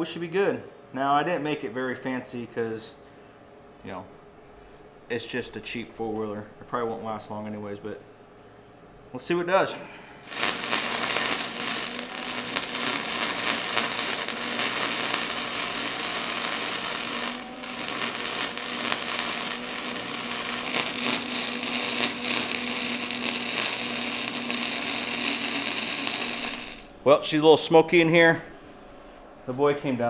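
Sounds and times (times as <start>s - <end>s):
welding arc crackling: 10.2s - 27.0s.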